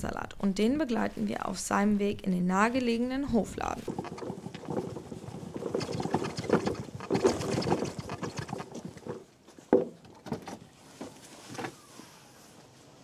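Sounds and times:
handcart with crates rattling: 3.6 - 11.8.

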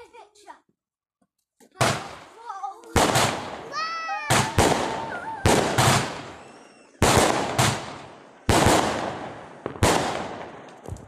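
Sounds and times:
fireworks bangs echoing: 1.7 - 11.0
firework whistle: 4.3 - 7.0.

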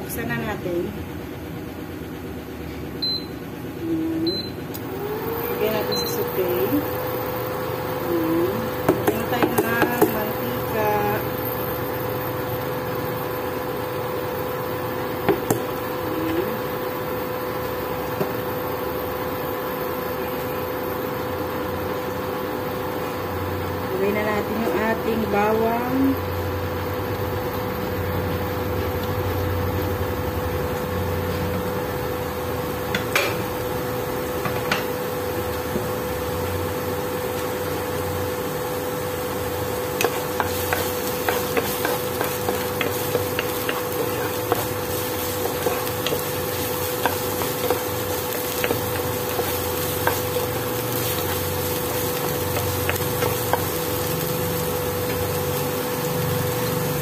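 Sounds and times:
steady hum: 0.0 - 57.0
garlic sizzling in oil: 24.5 - 57.0
spatula tapping and scraping pan: 40.0 - 44.8.

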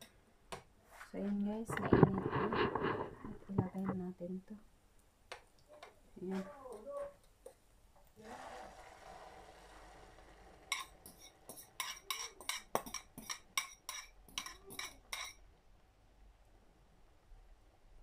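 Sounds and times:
metal spoon scraping ceramic bowl: 10.7 - 15.4.

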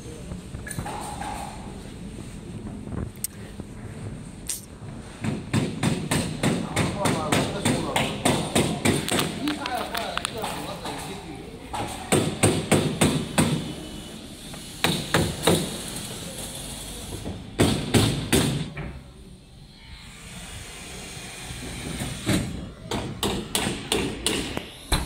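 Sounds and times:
sharp knocks: 21.8 - 25.0.

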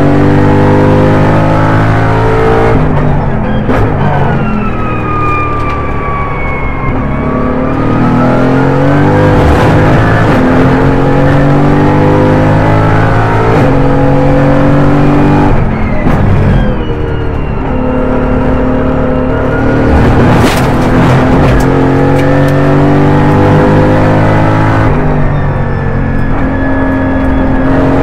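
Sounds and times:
race car engine accelerating: 0.0 - 4.4, 6.8 - 28.0.

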